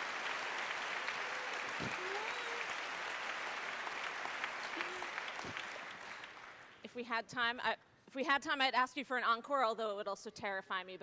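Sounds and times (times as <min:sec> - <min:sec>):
large audience applauding: 0:00.0 - 0:06.8.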